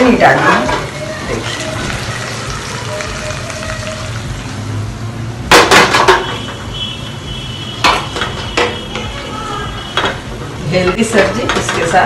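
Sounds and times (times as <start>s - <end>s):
metal utensils clanking in pan: 0.2s - 2.1s, 5.5s - 6.6s, 7.8s - 9.3s, 9.9s - 12.0s.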